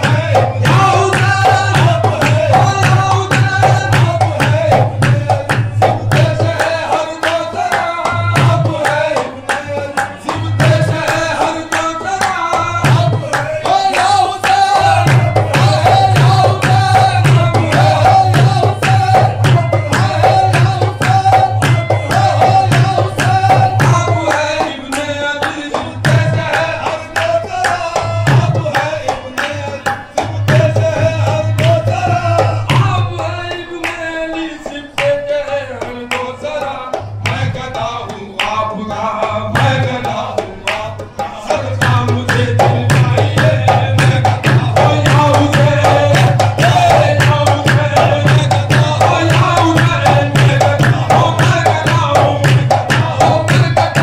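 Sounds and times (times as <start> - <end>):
hand drum: 0.0 - 7.4, 12.8 - 24.7, 41.5 - 54.0
harmonium: 0.0 - 54.0
men singing: 0.0 - 54.0
rhythmic hand-clapping: 0.0 - 54.0.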